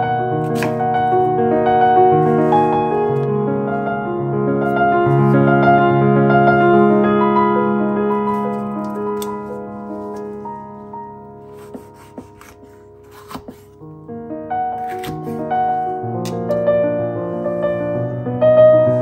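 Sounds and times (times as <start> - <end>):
slow piano melody: 0.0 - 19.0.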